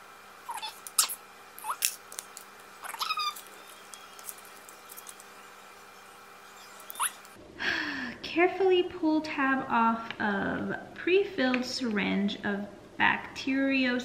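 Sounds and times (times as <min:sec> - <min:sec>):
pet squeaky calls: 0:00.5 - 0:02.0, 0:02.8 - 0:07.4.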